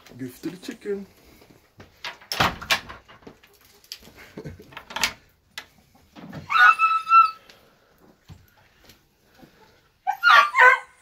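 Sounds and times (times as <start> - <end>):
rustling and knocks: 1.8 - 6.5
dog whining: 6.5 - 7.4, 10.1 - 11.0.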